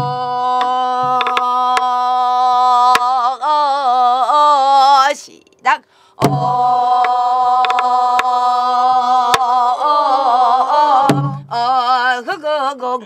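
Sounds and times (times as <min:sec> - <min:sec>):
woman singing a held note: 0:00.0 - 0:05.4, 0:06.2 - 0:12.4
stick clicks on drum: 0:00.6 - 0:01.9, 0:07.0 - 0:08.3
deep drum stroke: 0:06.2 - 0:06.7.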